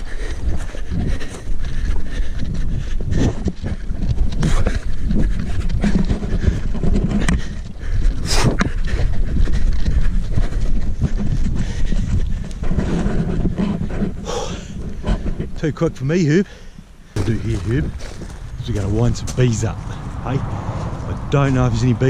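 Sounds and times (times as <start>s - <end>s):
man breathing heavily: 0.0s - 15.6s, 16.4s - 19.1s, 19.7s - 21.3s
wind rumble: 0.0s - 15.6s, 16.8s - 22.0s
footfalls on grass: 17.2s - 20.1s
microphone handling noise: 17.2s - 21.4s.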